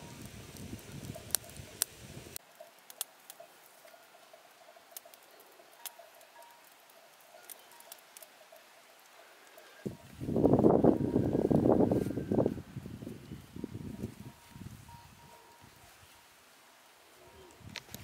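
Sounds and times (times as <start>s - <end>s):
fire crackling pops: 0.0s - 4.0s, 4.9s - 8.4s, 17.5s - 18.0s
campfire burning: 0.0s - 18.0s.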